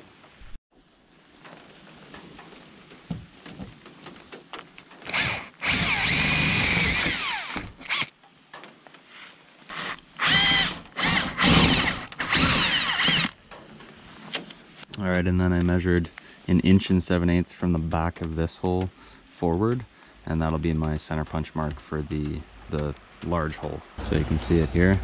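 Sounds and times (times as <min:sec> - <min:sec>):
power drill whining through metal: 0:05.0 - 0:08.1, 0:09.7 - 0:13.4.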